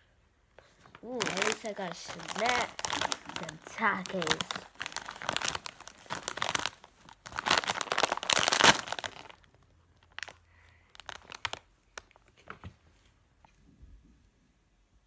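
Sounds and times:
chip bag crinkling: 0:00.9 - 0:12.3.

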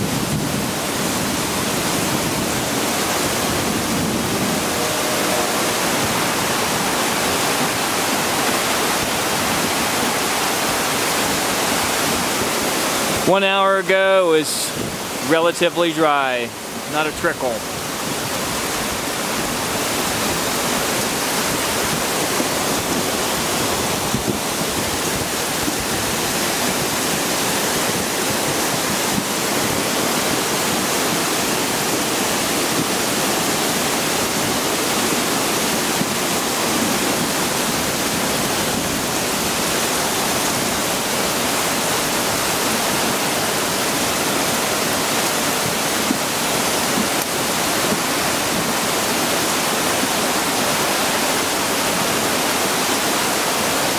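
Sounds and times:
heavy rain: 0:00.0 - 0:53.9
torrent roaring down rocky gully: 0:02.2 - 0:09.2.

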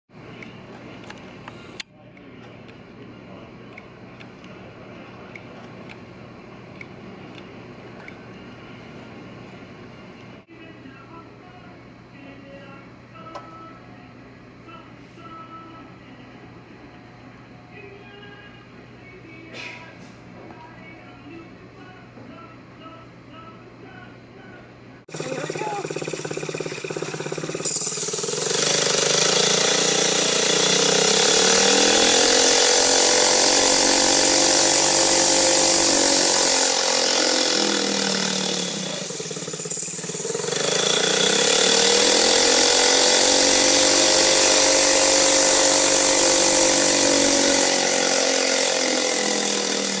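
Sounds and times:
small engine revving: 0:25.1 - 0:50.0.

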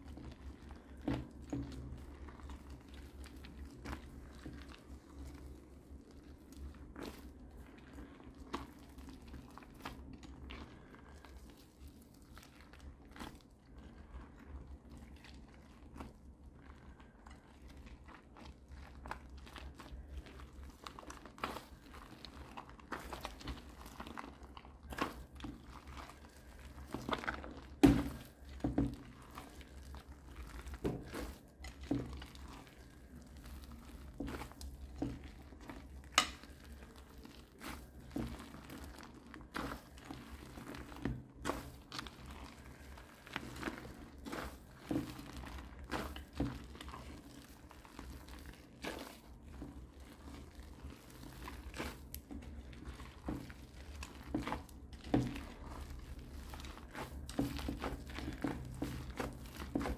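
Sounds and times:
slime squishing and snapping: 0:14.9 - 0:59.9.

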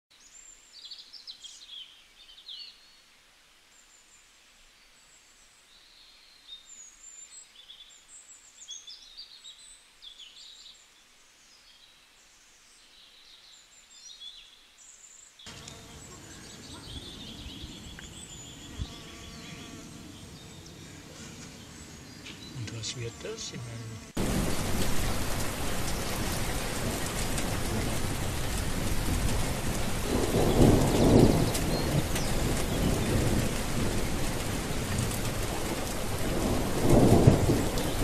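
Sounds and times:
songbirds chirping: 0:00.1 - 0:38.0
insects buzzing: 0:15.4 - 0:38.0.

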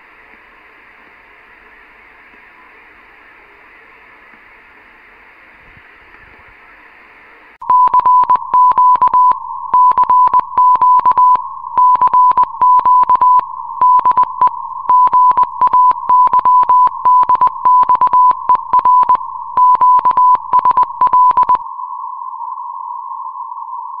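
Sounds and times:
radio static hiss: 0:00.0 - 0:07.6
steady tone: 0:07.0 - 0:24.0
morse code beeps: 0:07.6 - 0:21.6.

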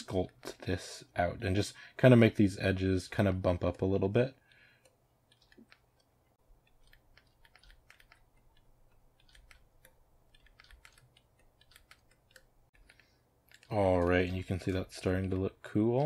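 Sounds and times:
computer mouse clicks: 0:04.5 - 0:14.4.

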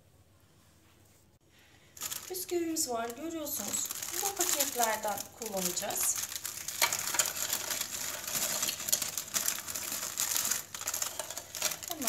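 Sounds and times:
plastic wrapper crinkling: 0:01.9 - 0:12.0.

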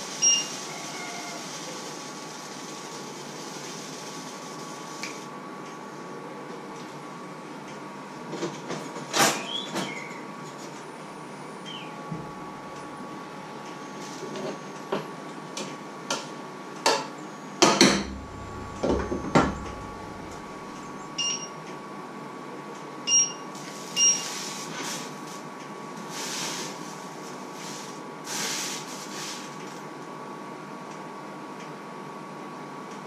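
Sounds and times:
faint steady whine: 0:17.3 - 0:21.8
short electronic beeps: 0:19.5 - 0:21.6.

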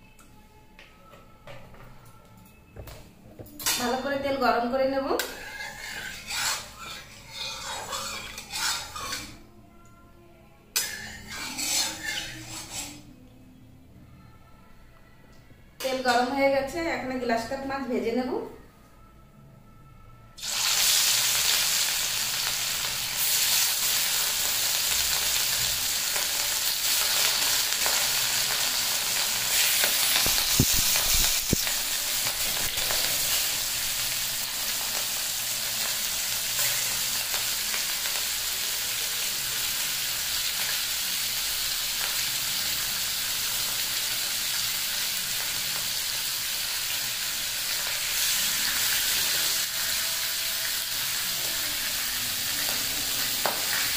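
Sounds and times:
fish sizzling in hot oil: 0:20.4 - 0:53.9.

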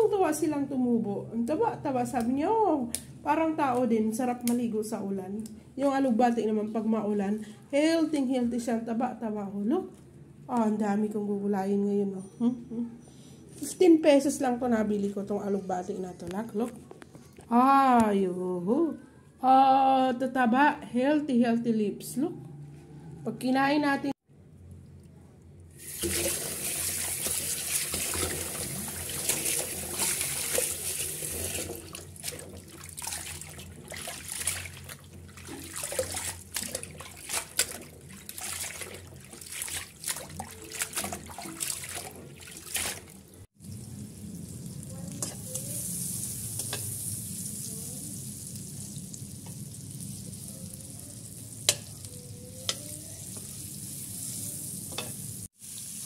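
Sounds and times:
food sizzling in hot oil: 0:25.8 - 0:31.7, 0:43.6 - 0:56.0
leaves rustling in water: 0:25.8 - 0:43.8
running water splashing: 0:25.8 - 0:44.0.

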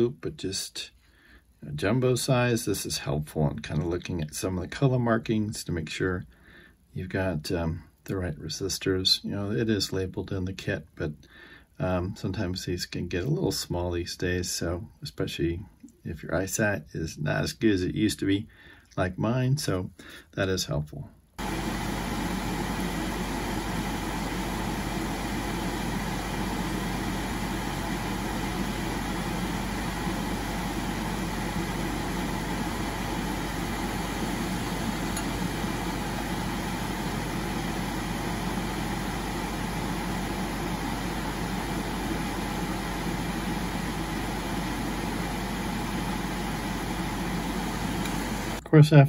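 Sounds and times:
extractor fan humming: 0:21.4 - 0:48.7.

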